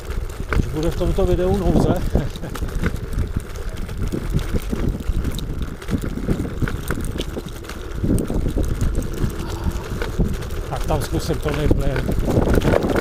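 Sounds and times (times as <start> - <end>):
wind buffeting microphone: 0.0 - 13.0
scooter knocks and rattles: 10.0 - 13.0.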